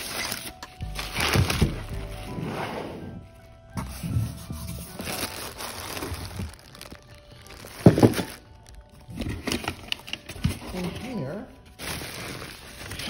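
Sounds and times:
plastic wrap crinkling: 0:00.0 - 0:02.2, 0:04.3 - 0:13.0
crackles: 0:05.0 - 0:10.1.

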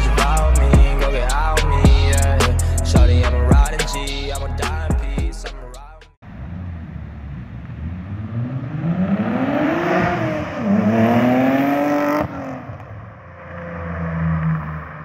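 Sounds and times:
car engine accelerating hard: 0:06.2 - 0:15.0.

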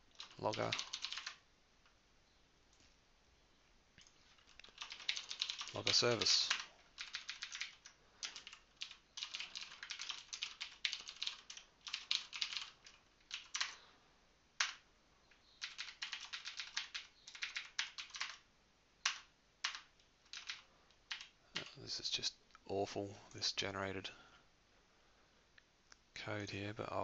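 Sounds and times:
keyboard typing: 0:00.1 - 0:01.4, 0:04.0 - 0:13.8, 0:14.6 - 0:14.8, 0:15.6 - 0:18.4, 0:19.0 - 0:21.8.

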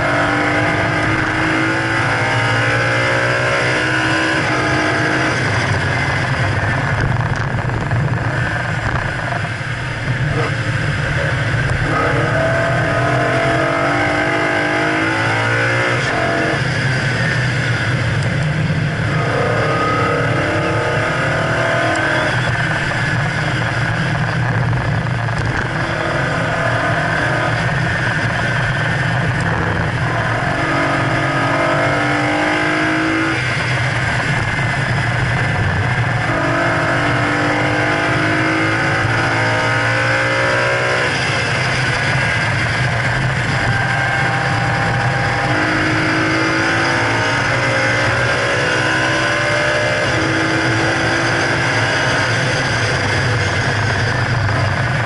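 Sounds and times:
racing car engine revving: 0:00.0 - 0:55.0
wind and tyre noise: 0:00.0 - 0:55.0.

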